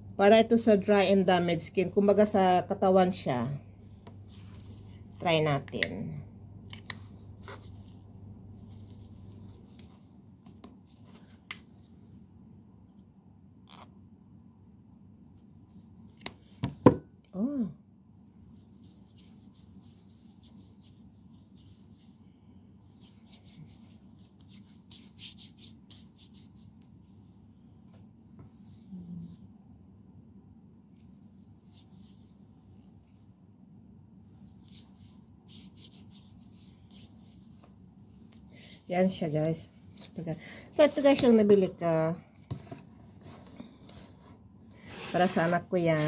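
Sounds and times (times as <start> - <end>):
low steady hum: 0.0 - 46.0
hands rubbing skin swishing: 18.4 - 22.1, 22.9 - 27.3, 31.0 - 33.2, 34.4 - 41.2.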